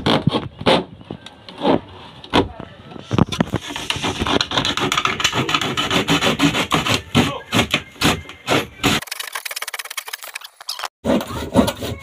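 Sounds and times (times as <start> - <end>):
hand saw cutting wood: 3.5 - 9.2, 11.0 - 12.0.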